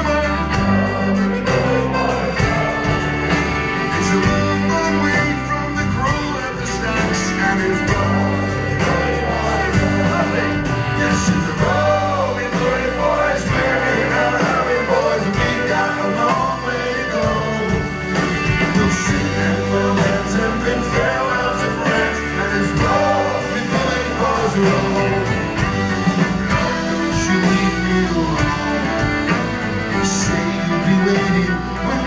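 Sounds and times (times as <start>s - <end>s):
drums: 0.0s - 32.0s
live band playing sea shanty: 0.0s - 32.0s
strummed acoustic guitar: 0.0s - 32.0s
man singing into microphone: 4.0s - 17.9s, 18.7s - 25.4s, 26.9s - 28.9s, 30.0s - 32.0s.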